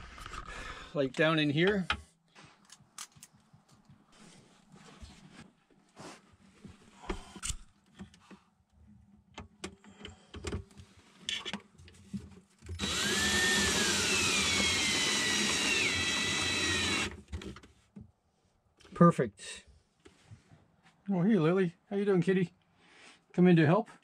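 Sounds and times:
power drill whining: 12.8s - 17.3s.

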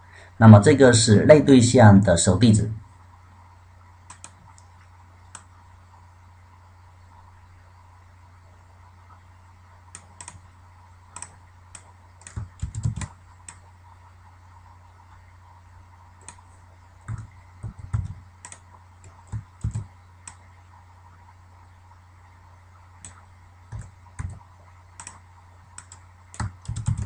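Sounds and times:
keyboard and mouse clicks: 4.1s - 4.7s, 5.3s - 5.5s, 9.9s - 10.4s, 11.1s - 13.6s, 16.2s - 20.4s, 23.0s - 24.4s, 25.0s - 27.0s.

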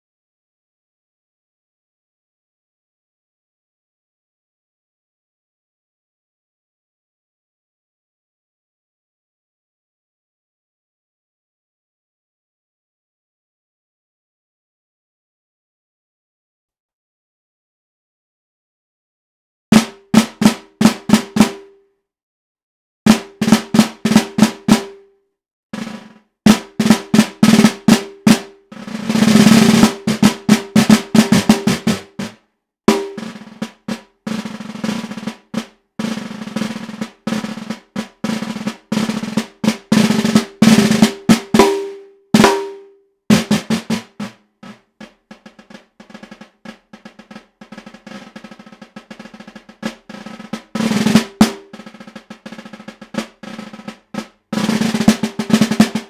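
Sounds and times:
snare drum strokes and rolls: 19.7s - 21.8s, 23.1s - 25.1s, 25.8s - 56.0s.

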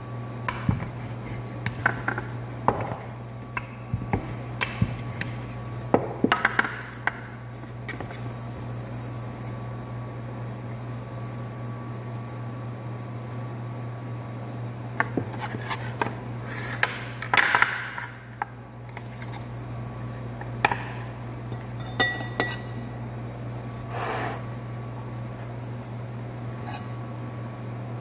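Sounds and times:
steady low hum: 0.0s - 28.0s
dishes and utensils clinking: 21.5s - 22.8s.

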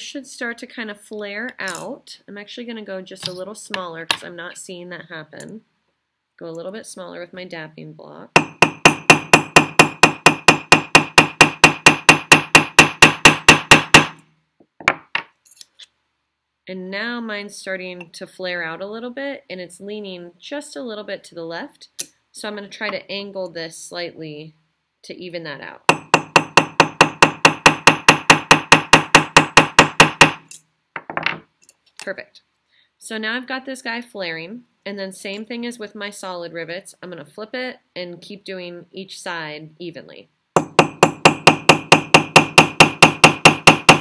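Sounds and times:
hammer tapping metal punch: 8.4s - 14.2s, 25.9s - 30.5s, 40.6s - 44.0s.

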